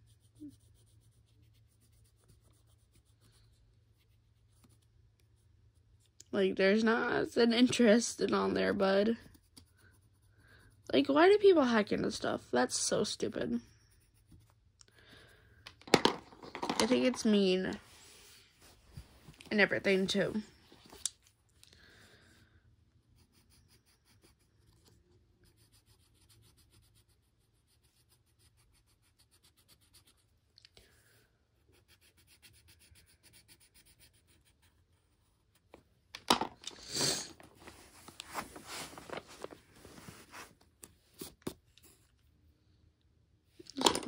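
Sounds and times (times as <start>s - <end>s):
pencil scratching on paper: 0.0s - 6.2s, 6.8s - 12.2s, 13.2s - 15.4s, 23.0s - 30.4s, 31.6s - 35.8s.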